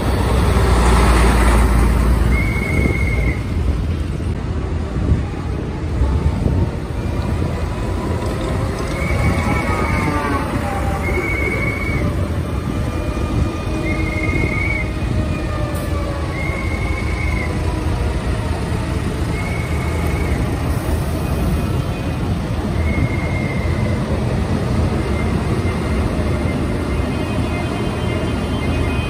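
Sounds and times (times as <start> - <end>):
tractor diesel engines running: 0.0 - 29.0.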